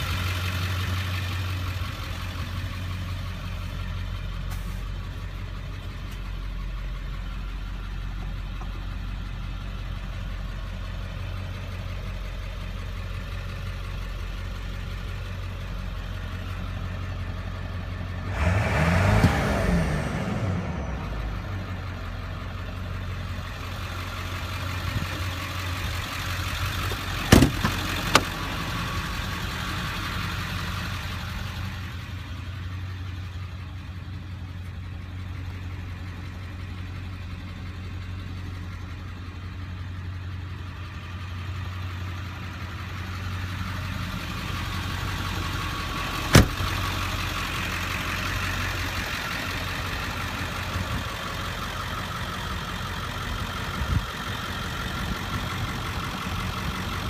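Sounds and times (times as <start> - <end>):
diesel truck engine idling: 0.0 - 57.0
sharp metal clunks: 27.3 - 28.3.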